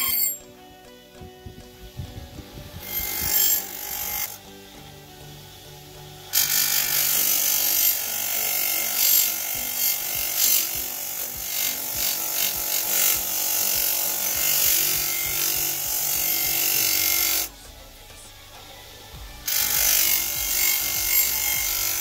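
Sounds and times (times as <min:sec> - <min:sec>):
grinder motor hum: 0:01.4 - 0:17.6, 0:18.5 - 0:22.0
blade grinding on abrasive wheel: 0:02.7 - 0:04.5, 0:06.2 - 0:17.6, 0:19.4 - 0:22.0.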